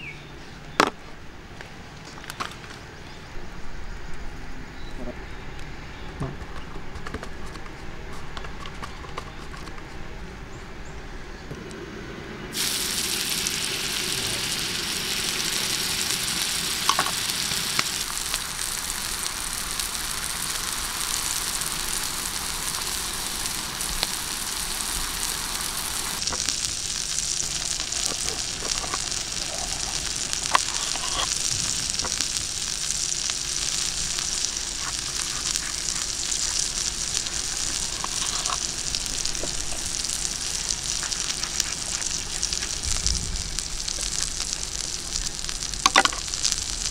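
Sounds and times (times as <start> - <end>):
liquid sizzling on hot stone: 12.5 - 46.9.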